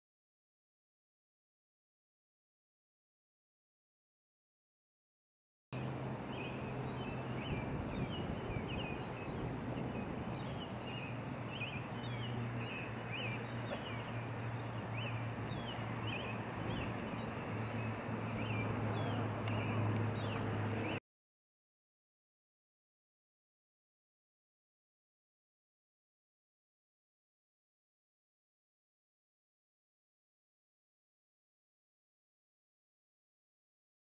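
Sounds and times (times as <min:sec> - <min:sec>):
small birds chirping: 0:05.8 - 0:21.0.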